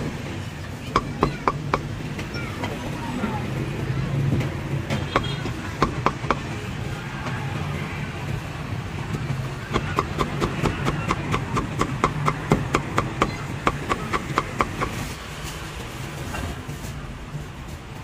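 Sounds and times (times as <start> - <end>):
low traffic hum: 0.0 - 18.0
cleaver chopping on wooden block: 9.7 - 15.0.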